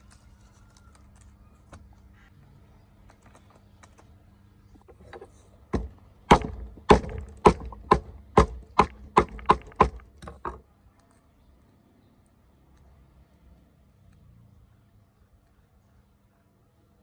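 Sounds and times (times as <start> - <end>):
cleaver chopping on wooden block: 5.7 - 10.6.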